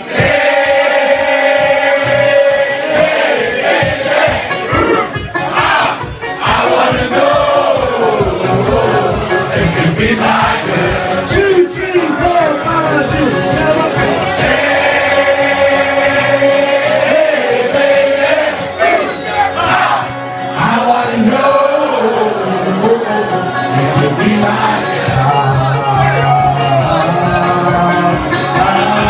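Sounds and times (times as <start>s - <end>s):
banjo and guitar playing: 0.0s - 29.0s
crowd singing along: 0.0s - 29.0s
man singing into a microphone: 20.6s - 29.0s.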